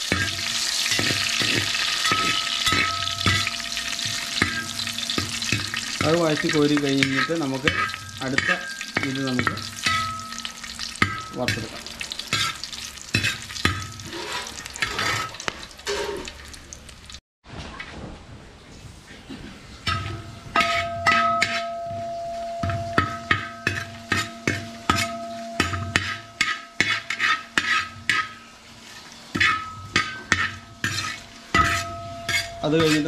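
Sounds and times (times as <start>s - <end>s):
metal pot ringing: 0.0s - 14.1s, 19.8s - 28.5s, 29.4s - 33.0s
metal spoon scraping and knocking pot: 0.0s - 16.3s, 19.8s - 28.4s, 29.3s - 33.0s
spices sizzling in hot oil: 0.0s - 17.2s, 19.8s - 33.0s.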